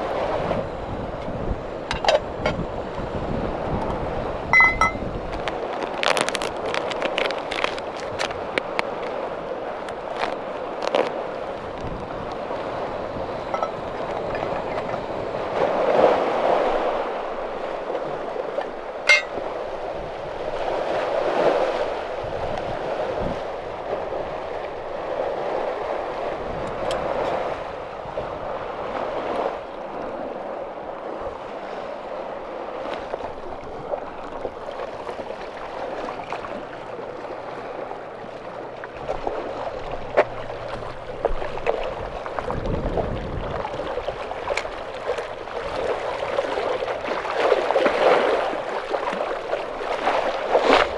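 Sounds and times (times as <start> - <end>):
water lapping against stone wall: 0.0 - 50.9
sharp clink: 4.6 - 5.0, 19.1 - 19.3.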